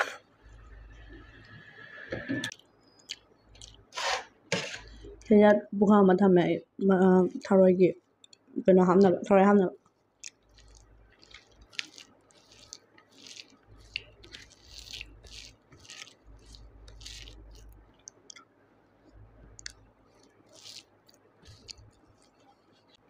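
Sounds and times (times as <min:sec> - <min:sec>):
wet chewing and squishing: 0:02.5 - 0:03.9, 0:09.8 - 0:23.0.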